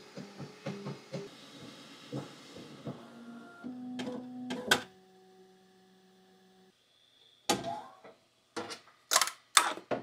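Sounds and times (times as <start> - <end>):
faint printer hum: 0.0 - 8.7.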